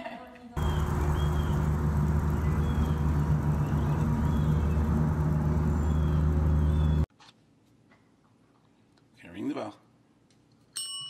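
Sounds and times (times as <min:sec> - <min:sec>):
low motor hum: 0:00.6 - 0:07.1.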